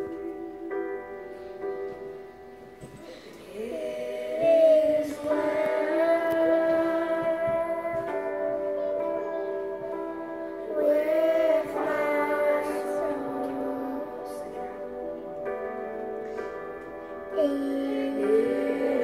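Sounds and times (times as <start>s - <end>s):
girl singing: 0.0s - 2.0s, 2.9s - 19.0s
piano accompaniment: 0.0s - 19.0s.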